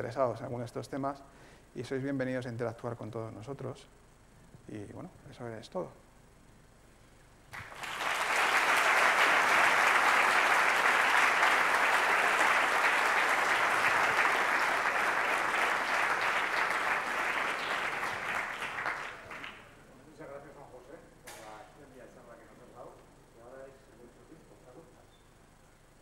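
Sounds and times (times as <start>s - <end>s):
audience applauding: 7.5s - 19.8s.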